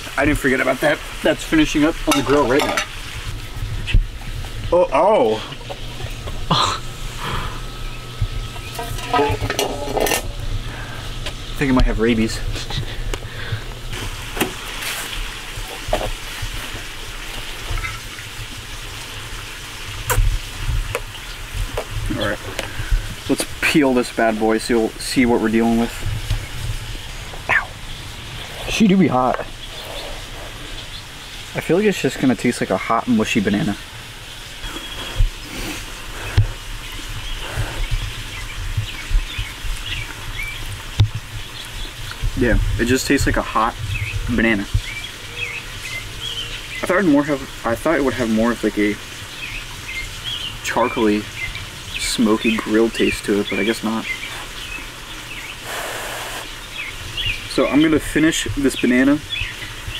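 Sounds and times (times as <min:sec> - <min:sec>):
low uneven rumble: 0:00.0 - 0:53.0
background hiss: 0:00.0 - 0:59.9
low hum: 0:02.2 - 0:14.6
small birds chirping: 0:04.7 - 0:13.8, 0:21.0 - 0:59.9.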